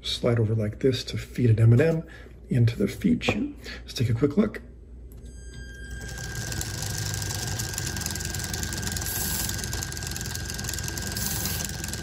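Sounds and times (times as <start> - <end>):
thin high whine: 5.2 - 12.0
small motor spinning: 6.0 - 12.0.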